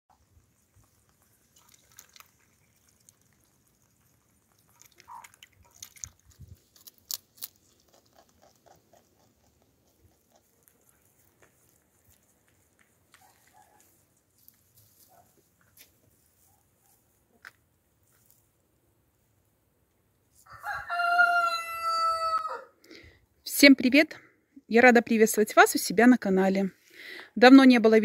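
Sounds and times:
rabbits rustling and nibbling: 0.1s - 21.1s.

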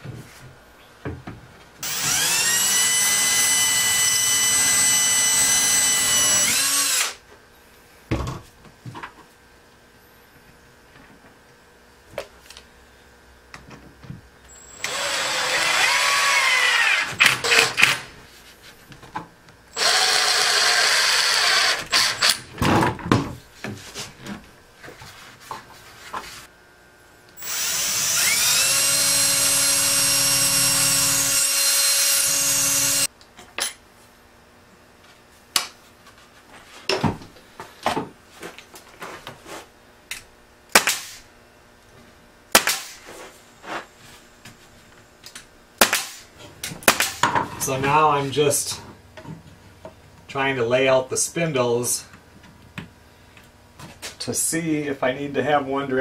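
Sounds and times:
cordless drill boring into wood: 1.8s - 7.2s, 14.5s - 18.0s, 19.7s - 22.4s, 27.4s - 33.1s
sharp crack: 40.7s - 41.2s, 42.6s - 43.0s, 45.8s - 47.2s.

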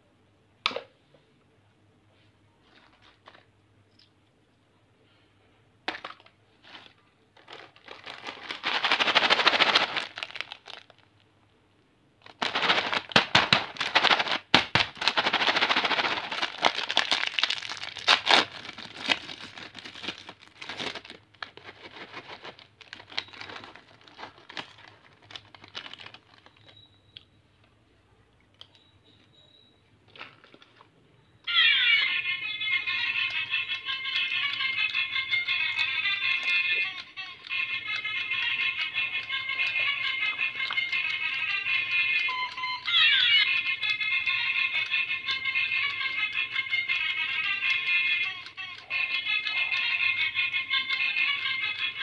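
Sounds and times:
snack packet crinkling and tearing: 6.1s - 11.2s, 12.2s - 26.8s.

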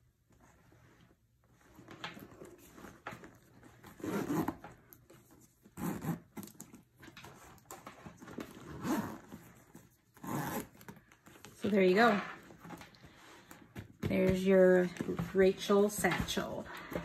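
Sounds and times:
leather bag rustling: 1.7s - 17.0s
zipper being pulled closed: 3.8s - 4.7s, 5.7s - 6.6s, 8.5s - 11.1s.

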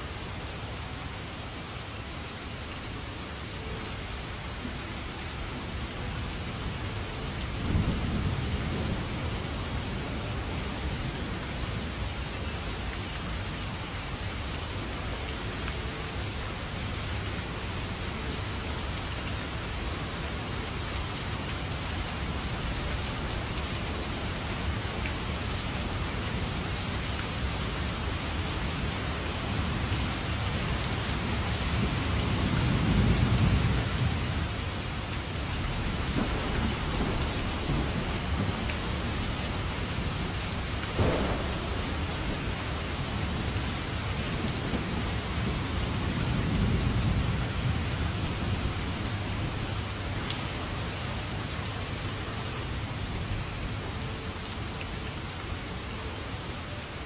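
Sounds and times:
heavy rain pouring: 0.0s - 57.0s
low rumble of thunder: 7.2s - 12.2s, 29.4s - 50.0s.

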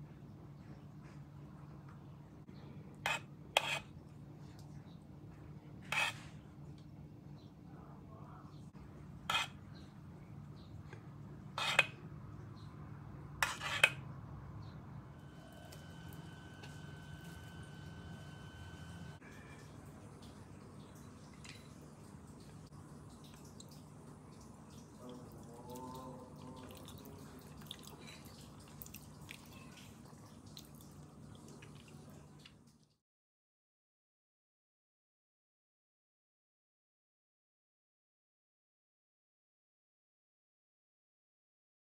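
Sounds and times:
metal spoon scraping a metal pan: 3.0s - 3.9s, 5.8s - 6.4s, 9.3s - 9.6s, 11.6s - 12.0s, 13.4s - 14.0s
low steady hum: 14.0s - 33.0s
spoon squishing in wet pudding: 20.2s - 32.9s.

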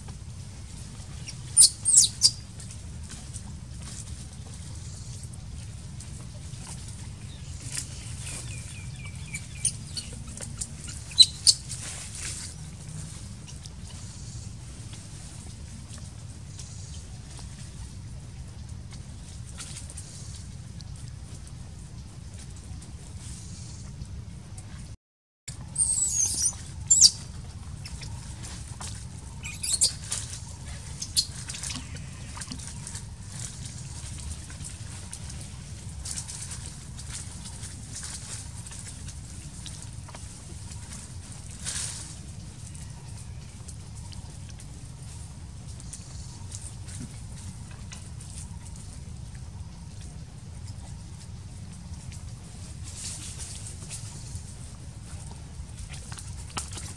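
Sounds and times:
low outdoor rumble: 0.0s - 56.9s
baby monkey squealing: 1.2s - 2.4s, 9.0s - 11.6s, 25.7s - 27.2s, 29.3s - 30.2s
small animal chirping: 1.2s - 2.4s, 8.3s - 11.8s, 25.6s - 28.6s, 29.2s - 32.0s.

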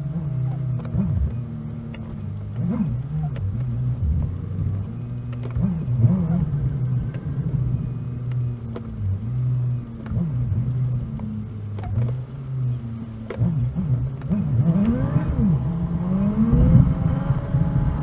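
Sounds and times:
sped-up car engine and road drone: 0.0s - 18.0s
faint clicks: 0.7s - 6.1s, 9.9s - 15.0s.

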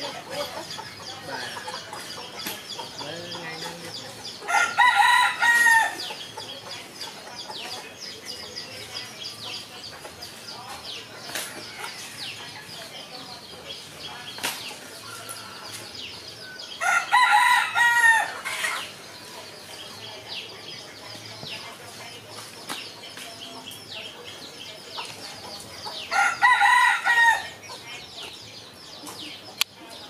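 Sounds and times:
rooster crowing: 4.5s - 6.0s, 16.8s - 18.3s.

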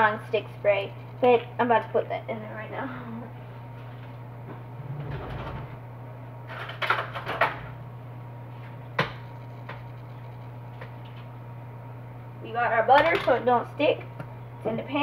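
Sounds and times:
steady low hum: 0.0s - 15.0s
low rumble: 4.2s - 6.3s.

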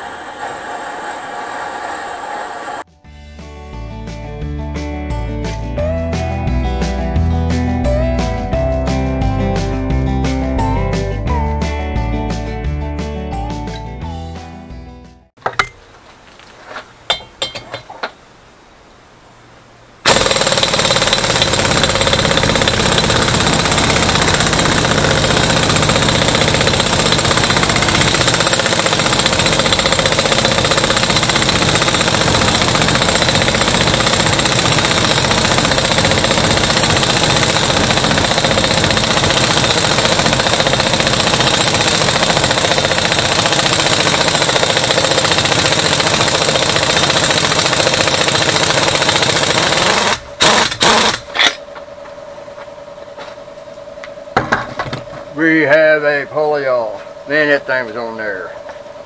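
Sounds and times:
pneumatic impact wrench hammering: 20.0s - 51.6s.

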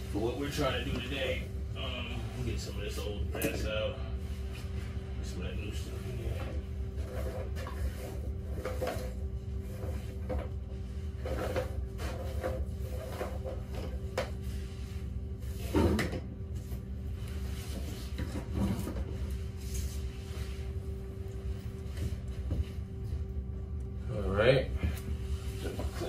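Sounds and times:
steady low hum: 0.0s - 26.0s
knocks and scrapes: 6.3s - 14.6s, 15.5s - 16.2s, 17.4s - 20.6s.

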